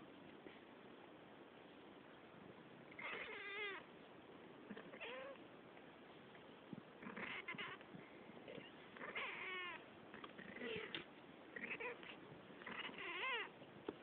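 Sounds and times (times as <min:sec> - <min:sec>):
cats meowing: 0:03.0 - 0:03.8, 0:04.7 - 0:05.4, 0:07.1 - 0:07.8, 0:08.5 - 0:13.6.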